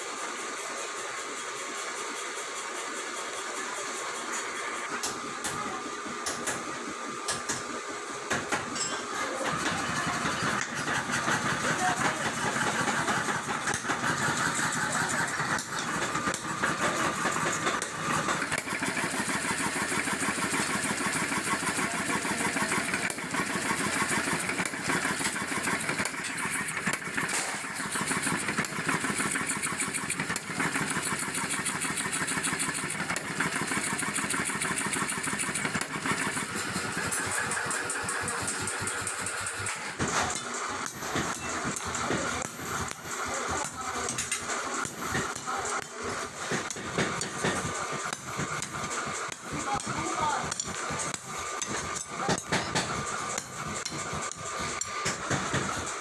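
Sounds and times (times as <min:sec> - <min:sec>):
power hammer striking steel bar: 0:15.4 - 0:56.0.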